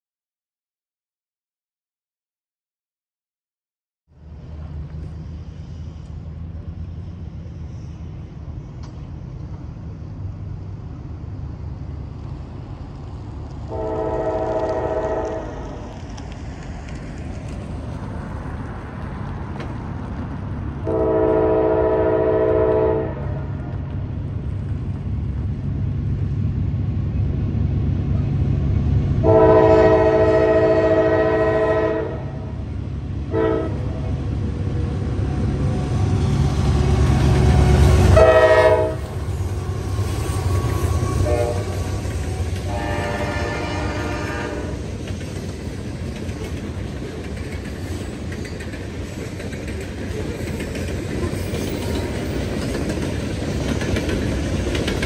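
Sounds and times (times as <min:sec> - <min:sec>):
locomotive air horn chords: 0:13.7 - 0:15.7, 0:20.8 - 0:23.6, 0:29.2 - 0:32.6, 0:33.3 - 0:34.0, 0:36.0 - 0:44.8.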